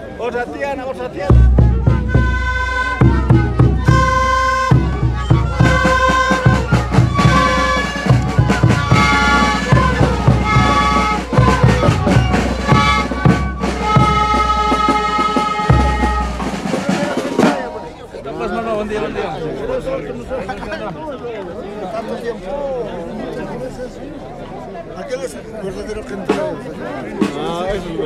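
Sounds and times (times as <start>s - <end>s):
drums beating: 1.3s - 17.9s, 26.2s - 28.0s
wooden flutes playing: 1.4s - 17.7s.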